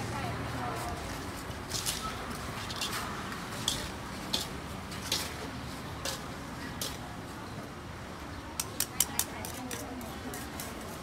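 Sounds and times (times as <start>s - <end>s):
steady background noise: 0.0s - 11.0s.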